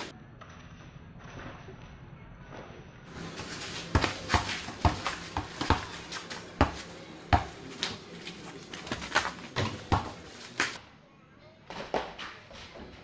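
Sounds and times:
basketball bouncing on dirt: 0:03.1 - 0:10.8.

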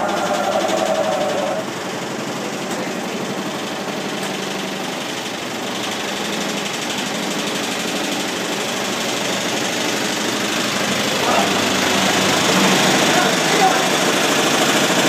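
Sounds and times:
washing machine rattling on spin: 0:00.0 - 0:15.0.

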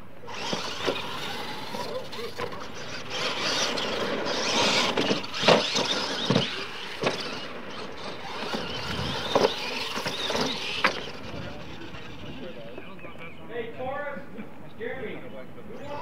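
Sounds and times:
rc truck motors whining: 0:00.0 - 0:13.4
trucks thumping on landing: 0:00.4 - 0:11.3.

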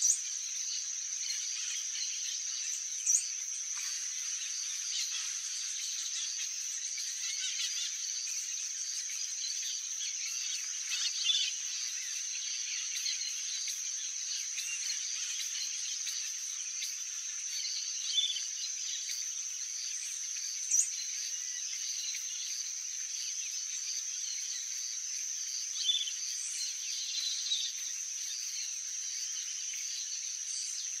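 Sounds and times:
high-pitched insect chorus: 0:00.0 - 0:31.0
short insect chirps: 0:00.0 - 0:31.0.

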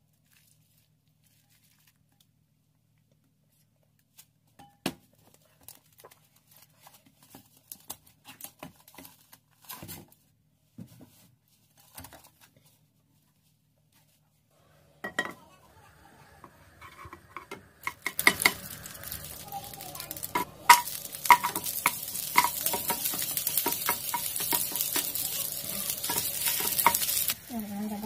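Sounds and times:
food frying in hot oil: 0:14.8 - 0:28.0
wooden spatula scraping a pan: 0:16.4 - 0:28.0.

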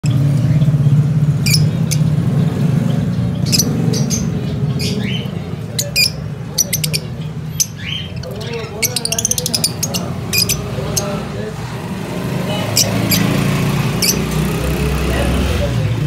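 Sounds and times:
lovebirds chirping and squawking: 0:00.0 - 0:16.0.

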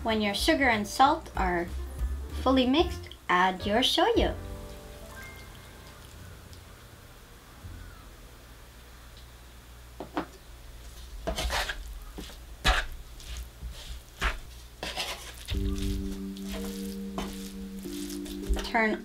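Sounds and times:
soft background music: 0:00.0 - 0:08.8, 0:15.5 - 0:19.0
light sizzle: 0:00.0 - 0:19.0
wooden spatula stirring paste in pan: 0:10.8 - 0:19.0.

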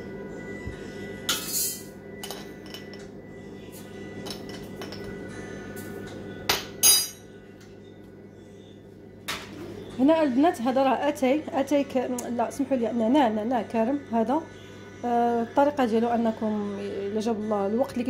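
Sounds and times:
quiet background music: 0:00.0 - 0:18.0
metal spoon clinking on teapot: 0:06.5 - 0:07.2.

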